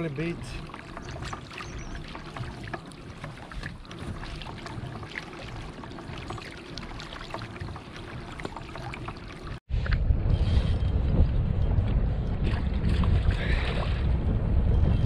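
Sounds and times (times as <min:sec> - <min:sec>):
small splashes: 0:00.0 - 0:09.6
water lapping against kayak hull: 0:00.0 - 0:10.0.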